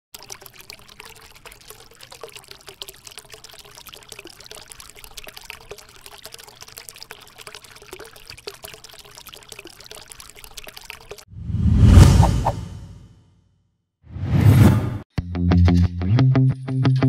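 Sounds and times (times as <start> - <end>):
water trickling onto pebbles: 0.1 - 11.3.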